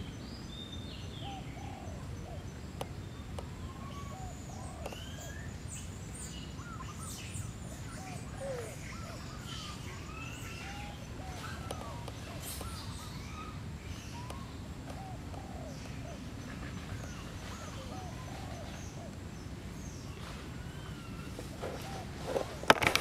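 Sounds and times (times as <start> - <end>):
chirping animal calls: 6.5 - 19.2, 20.5 - 23.0.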